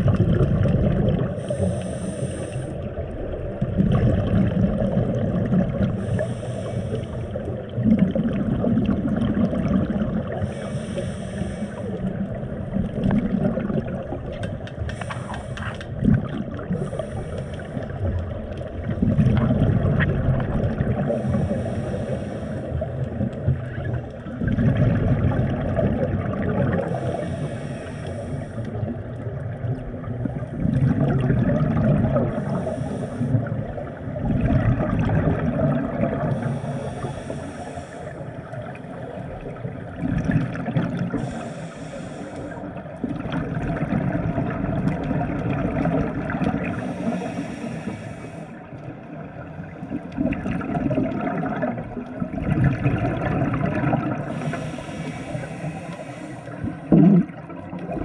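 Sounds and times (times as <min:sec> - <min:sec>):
exhaled bubbles gushing: 0:00.0 - 0:01.8, 0:02.8 - 0:06.4, 0:07.3 - 0:10.6, 0:11.8 - 0:21.7, 0:22.7 - 0:27.2, 0:28.7 - 0:36.6, 0:38.5 - 0:41.4, 0:42.6 - 0:47.4, 0:49.1 - 0:55.3, 0:56.5 - 0:58.0
regulator inhale hiss: 0:01.4 - 0:03.0, 0:05.9 - 0:07.5, 0:10.3 - 0:12.3, 0:14.8 - 0:16.0, 0:16.6 - 0:18.2, 0:21.0 - 0:23.0, 0:26.7 - 0:28.9, 0:32.2 - 0:33.8, 0:36.2 - 0:39.4, 0:41.1 - 0:42.8, 0:46.6 - 0:48.8, 0:54.2 - 0:57.0.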